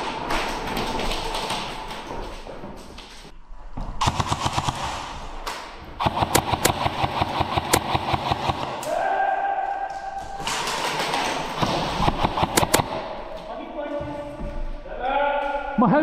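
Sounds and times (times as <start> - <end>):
airsoft guns firing full-auto: 4.0 - 8.9, 10.4 - 13.2.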